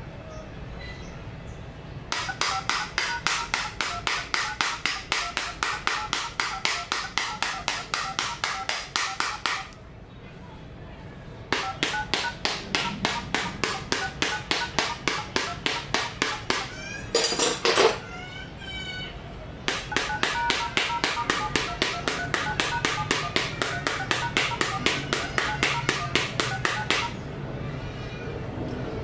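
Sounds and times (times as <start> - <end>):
phone keypad beeps: 2.2 - 9.7, 11.6 - 16.6, 19.8 - 27.2.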